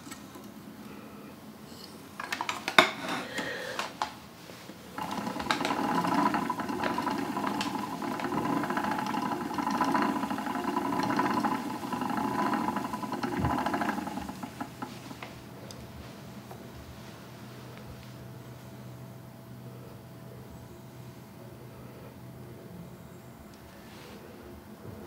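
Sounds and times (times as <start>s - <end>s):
spinning wheel whirring and clattering: 4.9s - 15.4s.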